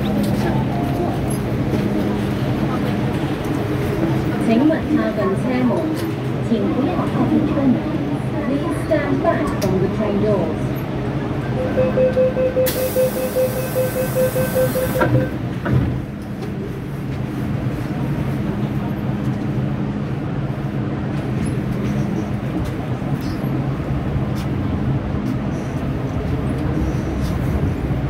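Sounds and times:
train doors shutting: 0.0 - 4.4, 11.5 - 17.3
train running hum: 0.0 - 28.0
door warning beeps: 11.6 - 15.4.

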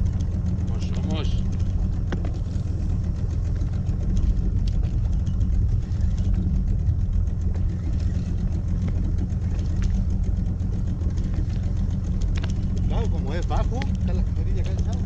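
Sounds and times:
outboard motor running: 0.0 - 15.0
faint clicks: 11.1 - 15.0.

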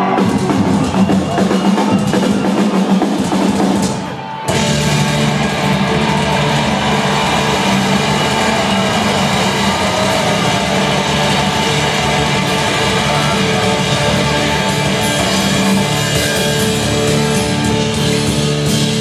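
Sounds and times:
busy drumming: 0.0 - 19.0
metal band playing loudly: 0.0 - 19.0.

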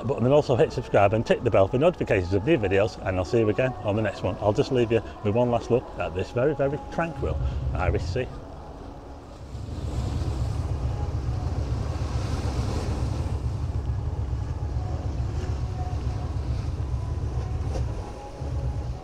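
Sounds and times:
wind buffeting microphone: 7.0 - 8.6, 9.4 - 19.0.

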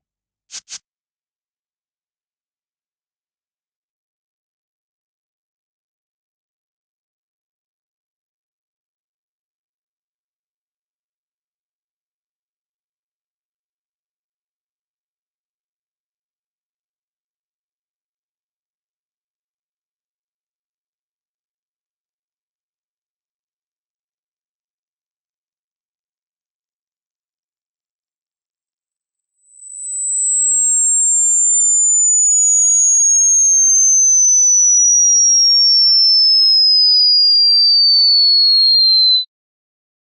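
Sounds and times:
sine tone sliding down in pitch: 11.0 - 39.3.

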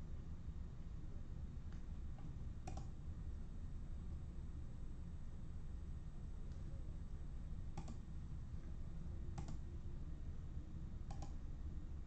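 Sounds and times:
low steady hum: 0.0 - 12.0
computer mouse clicking: 1.7 - 3.0, 7.8 - 8.0, 9.3 - 9.6, 11.0 - 11.4.

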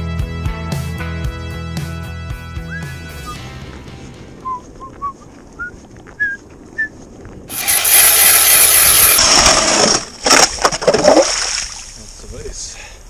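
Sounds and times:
ice auger grinding through ice: 7.5 - 10.5.

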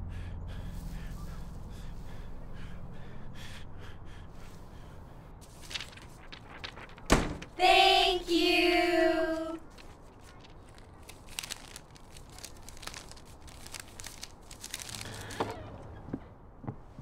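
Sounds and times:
banknotes rustling: 5.4 - 7.6, 8.6 - 15.6.

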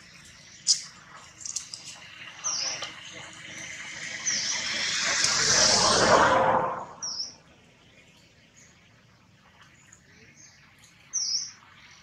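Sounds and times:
high bird chirps: 0.0 - 5.8, 6.9 - 7.4
loud rushing noise: 3.3 - 7.3.

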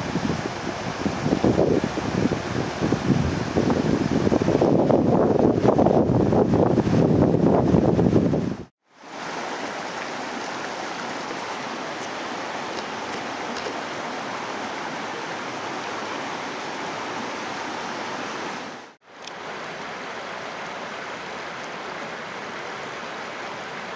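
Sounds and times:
stream flowing over rocks: 8.8 - 23.9.

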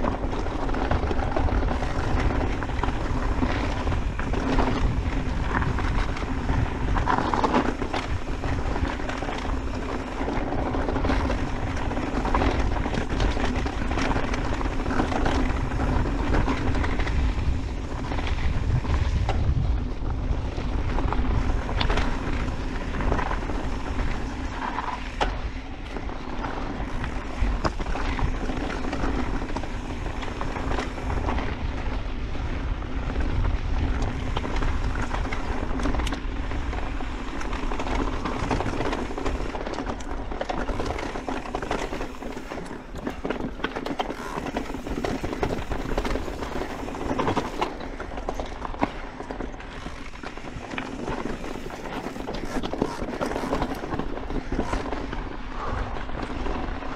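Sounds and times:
bike knocks and rattles: 0.0 - 55.7
bike tyres rolling on dirt: 0.0 - 56.9
wind buffeting microphone: 0.0 - 56.9.

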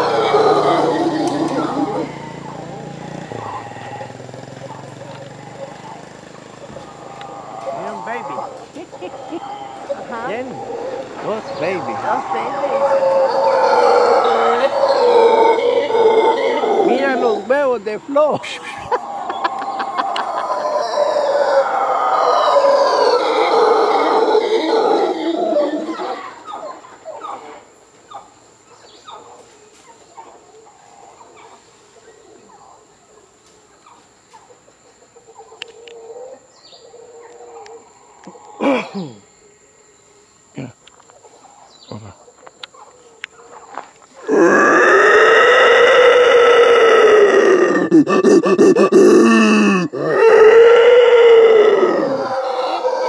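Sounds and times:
man imitating monkey howl: 0.0 - 4.2, 11.6 - 17.6, 44.2 - 53.0
faint animal calls: 0.0 - 17.8, 18.6 - 39.7, 40.4 - 53.0.

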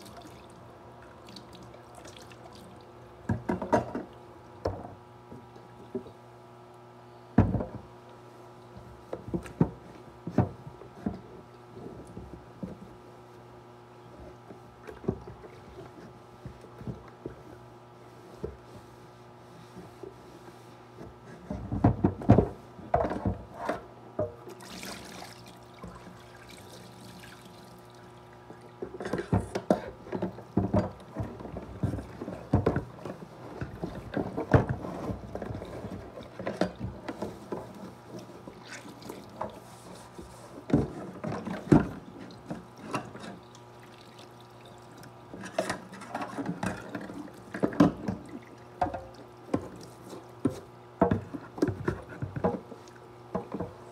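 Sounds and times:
plastic knocks and clunks: 7.4 - 7.9, 28.8 - 35.7, 50.4 - 52.7
tap water running into container: 24.5 - 29.1, 42.3 - 45.4.

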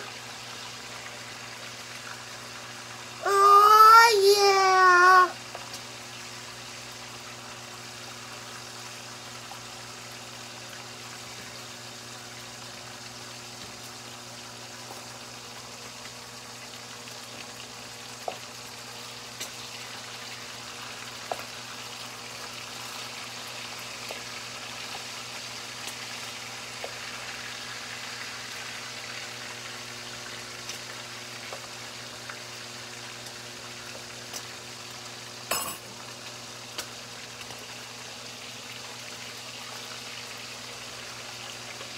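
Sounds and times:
bacon sizzling in a frying pan: 0.0 - 41.9.

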